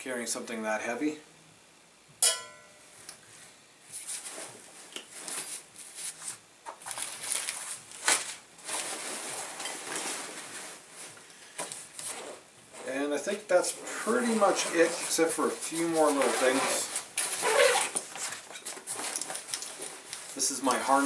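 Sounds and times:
backpack rustling and scraping: 8.1s - 21.0s.

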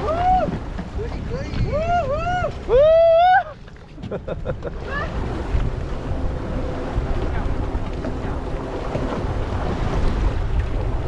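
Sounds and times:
waves washing against hull: 0.0s - 11.0s
wind buffeting microphone: 0.0s - 11.0s.

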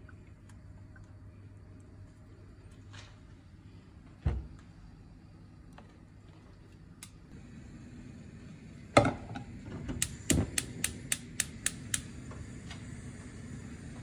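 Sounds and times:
stove igniter clicking: 7.0s - 7.2s, 9.3s - 13.0s
gas burner hissing: 7.0s - 14.0s.

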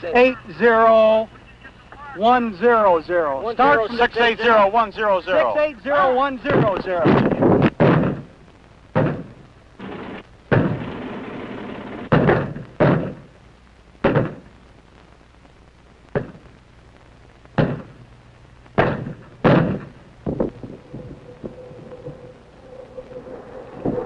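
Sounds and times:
artillery booms: 6.5s - 8.3s, 9.0s - 13.3s, 18.8s - 22.4s
rushing noise: 19.8s - 24.0s.

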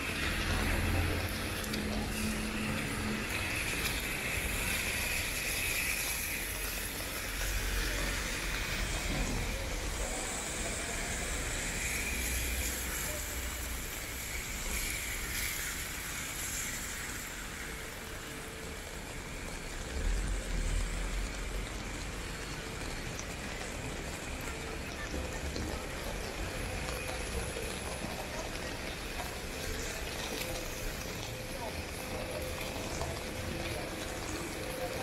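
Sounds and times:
road traffic rumbling: 0.0s - 14.0s
rain falling on street: 0.0s - 35.0s.

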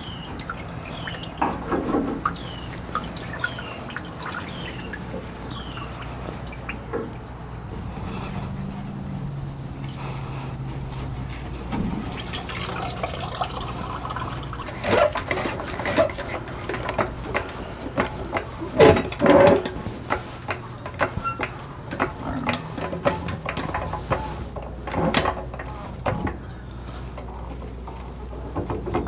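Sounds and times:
fuel pouring into plastic tub: 11.2s - 17.5s
floor jack clicking and clunking: 14.6s - 26.4s.

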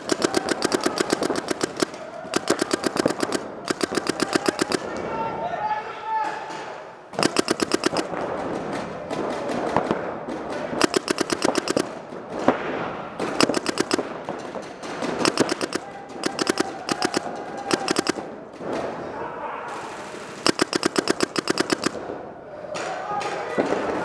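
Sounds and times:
paintball markers firing: 0.0s - 5.0s, 7.2s - 12.5s, 13.2s - 18.9s, 20.1s - 22.2s.

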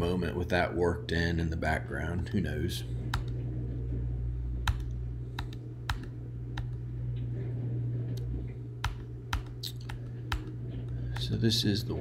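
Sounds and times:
steady low hum: 0.0s - 12.0s
keyboard keys clicking: 4.6s - 6.8s, 8.2s - 11.4s.

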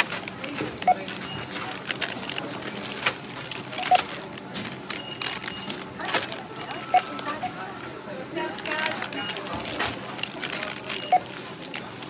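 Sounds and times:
plastic snack packets crinkling: 0.0s - 12.0s
barcode scanner beep: 0.8s - 2.4s, 3.6s - 4.2s, 4.9s - 7.9s, 8.6s - 11.4s.

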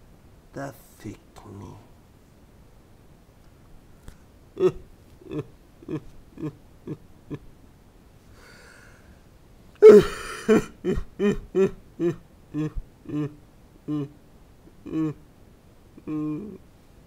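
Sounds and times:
person grunting: 4.6s - 7.0s, 9.8s - 14.2s, 14.8s - 15.2s, 16.0s - 16.6s
harsh cry: 9.8s - 14.2s.

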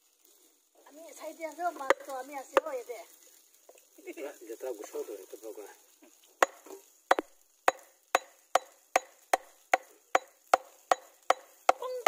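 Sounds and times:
knife chopping: 6.4s - 12.0s.

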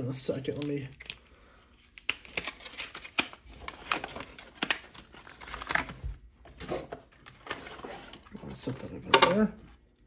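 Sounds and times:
plastic packaging crinkling: 0.5s - 6.3s.

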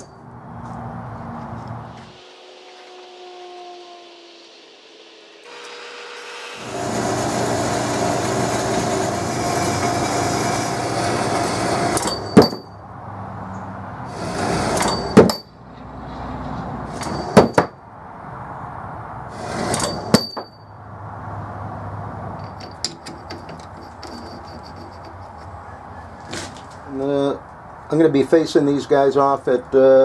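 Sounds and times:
metal-cutting bandsaw running: 5.4s - 12.2s
metal pieces dropping and clinking: 22.4s - 25.6s.

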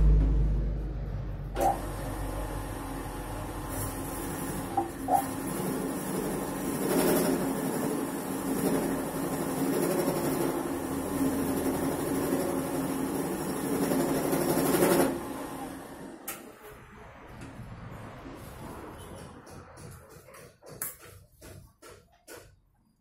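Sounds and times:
drill press humming: 1.5s - 16.7s.

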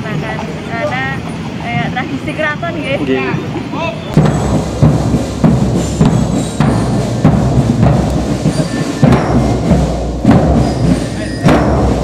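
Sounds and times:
marching band drums: 3.5s - 12.0s.

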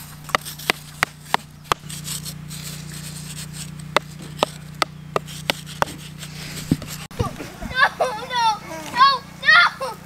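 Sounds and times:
sticks scraping in sandy dirt: 0.0s - 7.1s
steady low hum: 0.0s - 10.0s.

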